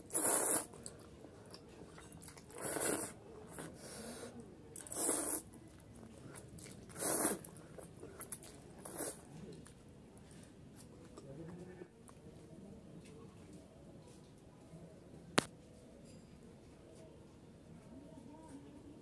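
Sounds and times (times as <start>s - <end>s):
soft chewing: 0.0s - 14.8s
person slurping noodles: 0.1s - 0.8s, 2.5s - 3.7s, 4.8s - 5.5s, 6.8s - 7.5s, 8.8s - 9.2s.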